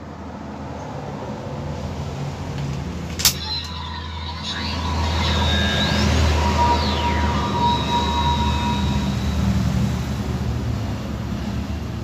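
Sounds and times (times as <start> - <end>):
toy electronic hum: 3.3 - 10.5
high electronic tones and whistles: 3.3 - 10.6.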